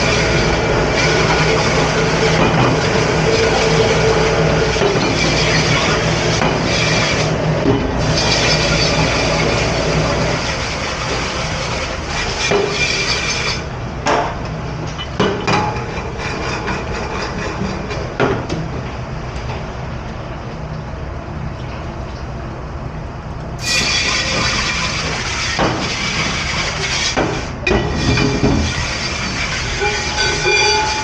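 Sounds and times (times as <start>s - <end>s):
rushing water and machinery: 0.0s - 14.6s, 23.6s - 31.0s.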